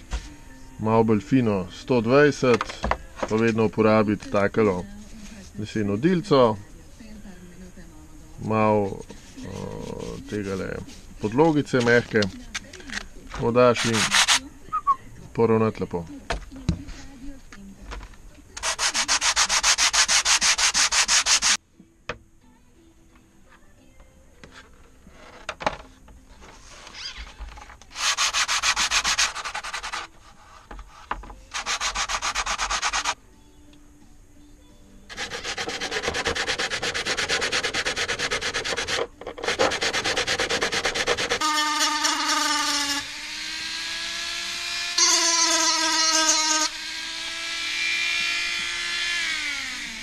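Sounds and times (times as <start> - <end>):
sandpaper rubbing: 9.2 - 12.3, 13.7 - 14.5, 18.6 - 21.6, 27.9 - 33.2, 35.1 - 43.0
rotary tool whining: 9.3 - 14.5, 26.5 - 33.2, 35.1 - 50.0.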